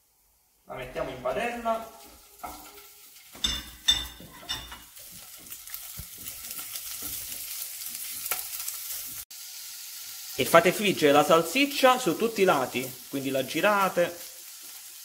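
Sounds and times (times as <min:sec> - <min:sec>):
sausage sizzling in a pan: 0:00.0 - 0:15.0
clattering knocks in a pan: 0:02.4 - 0:07.3.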